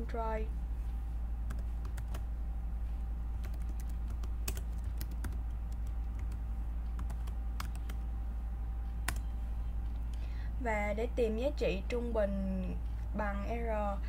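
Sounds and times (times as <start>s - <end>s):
steady low hum: 0.0s - 14.0s
keyboard typing: 1.5s - 2.3s, 3.4s - 8.0s, 9.0s - 9.3s.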